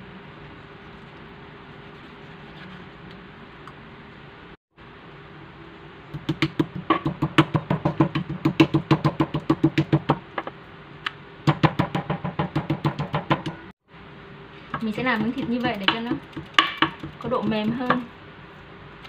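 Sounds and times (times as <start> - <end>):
meat mallet pounding meat: 6.2 - 10.2, 11.5 - 13.6, 14.8 - 18.1.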